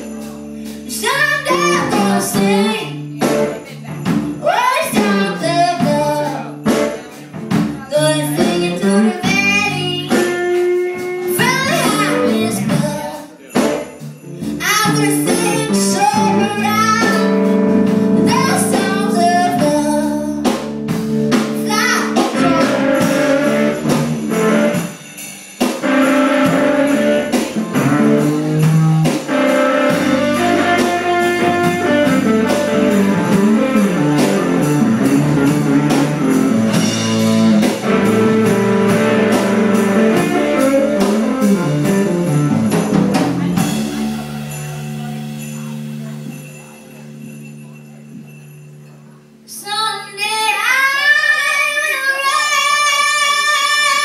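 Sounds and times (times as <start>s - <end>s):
rock band playing: 0.0s - 49.5s
woman singing: 0.8s - 6.5s, 7.6s - 10.4s, 11.3s - 13.4s, 14.6s - 17.5s, 18.3s - 20.5s, 21.6s - 23.7s, 49.5s - 54.0s.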